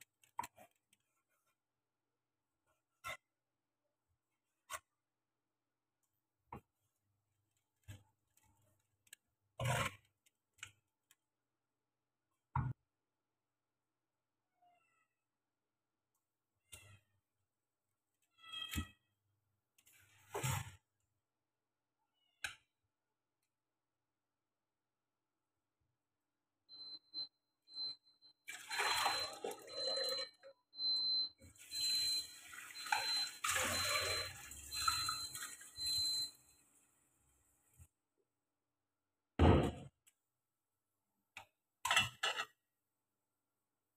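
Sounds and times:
tap water splashing in metal pot: 0:28.5 - 0:30.2, 0:32.4 - 0:35.8.

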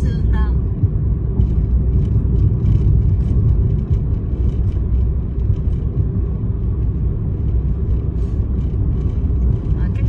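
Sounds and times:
car cabin road and engine rumble: 0:00.0 - 0:10.0.

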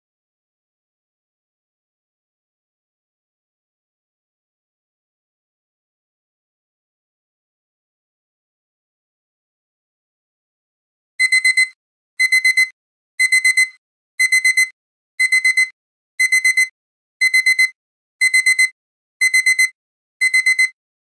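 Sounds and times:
alarm clock beeping: 0:11.2 - 0:20.8.

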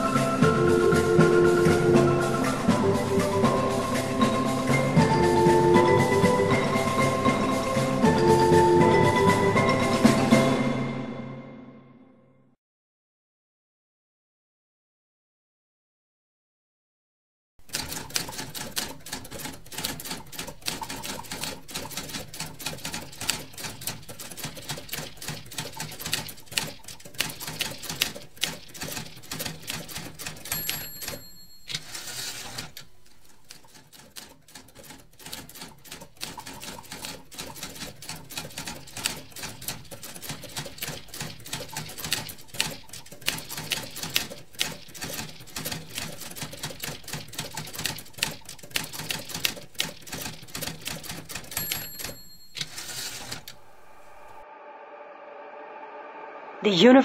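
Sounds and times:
typewriter keystrokes clacking: 0:17.6 - 0:53.6
typewriter bell ding: 0:27.4 - 0:32.7, 0:51.0 - 0:53.5.

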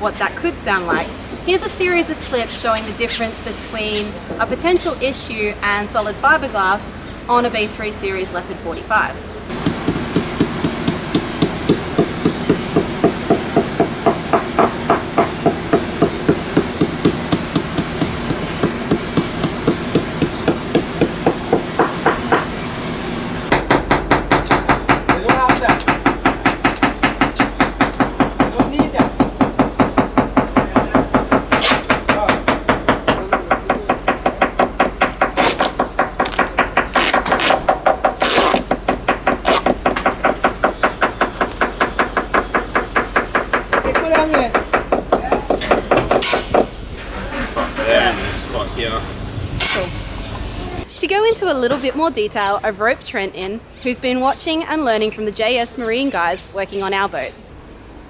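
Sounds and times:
hammer tapping fiberglass hull: 0:09.5 - 0:22.5, 0:23.5 - 0:46.7.

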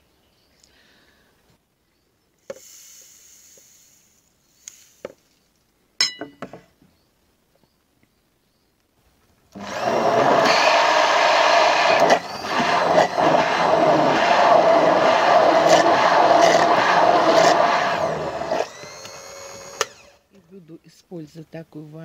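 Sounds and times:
immersion blender running: 0:09.6 - 0:20.3.

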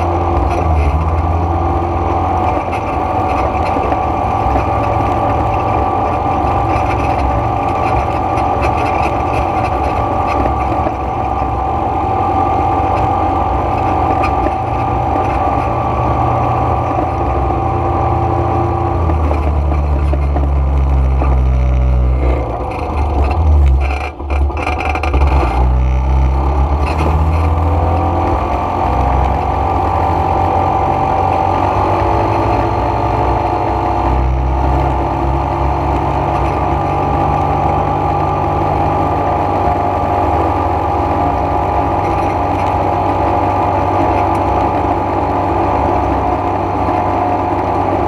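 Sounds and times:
atv engine running: 0:00.0 - 0:48.0.

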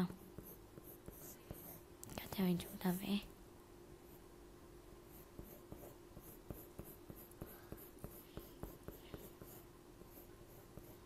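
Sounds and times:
pencil scratching on paper: 0:00.0 - 0:03.2, 0:05.1 - 0:11.0
faint steady hum: 0:00.0 - 0:11.0.

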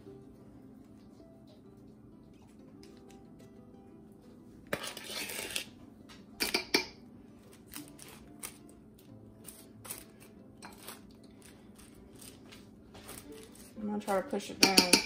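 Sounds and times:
metal spoon clinking on a bowl: 0:06.4 - 0:07.0, 0:14.5 - 0:15.0.

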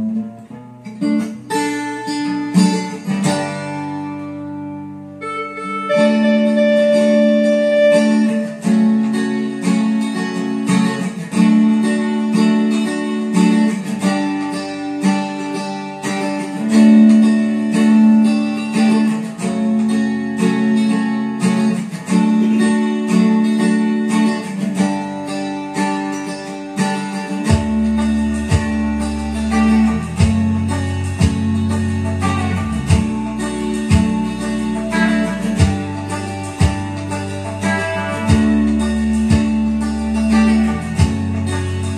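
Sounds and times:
strummed acoustic guitar: 0:00.0 - 0:41.9
bass part: 0:27.5 - 0:41.9.

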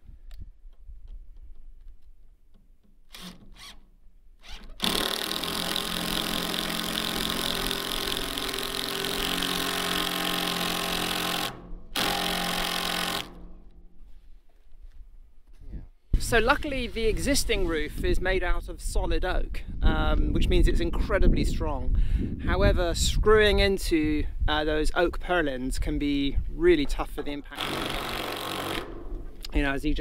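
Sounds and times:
cordless drill drilling into wood: 0:03.1 - 0:03.8, 0:04.4 - 0:13.4, 0:27.6 - 0:29.0.

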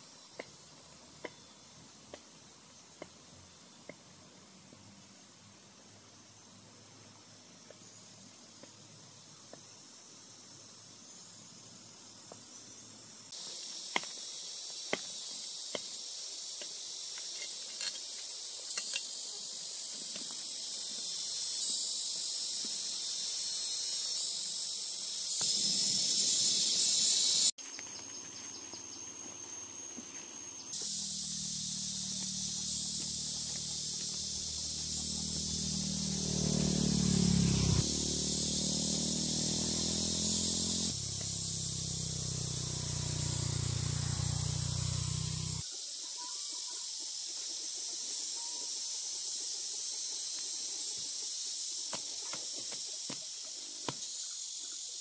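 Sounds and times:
high-pitched hiss: 0:00.0 - 0:55.0
low hum: 0:41.0 - 0:45.6.

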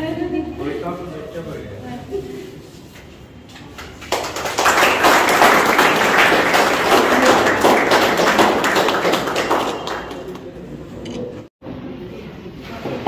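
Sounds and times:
people clapping: 0:03.5 - 0:10.8.

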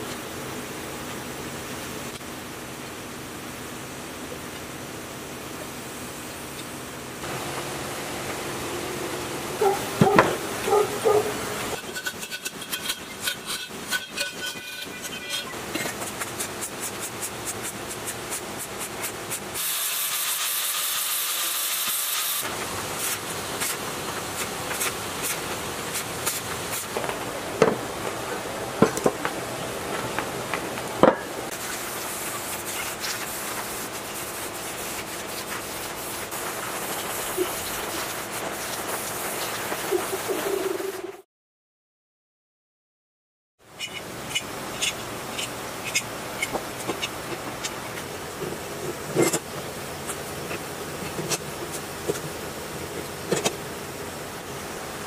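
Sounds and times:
crackling welding: 0:09.6 - 0:41.0
rasping strokes on steel pipe: 0:11.7 - 0:18.2
hiss: 0:15.7 - 0:27.1, 0:31.5 - 0:41.1.

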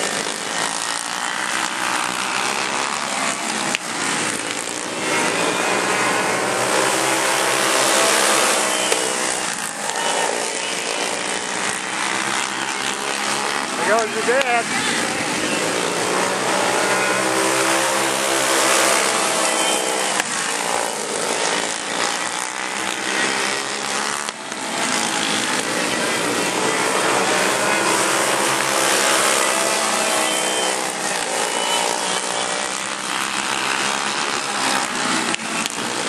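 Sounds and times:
go-kart engines racing: 0:00.0 - 0:36.0.

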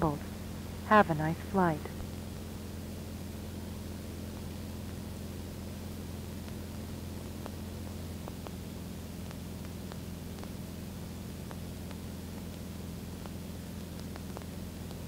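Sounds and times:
aircraft engine and propeller drone: 0:00.0 - 0:10.5.

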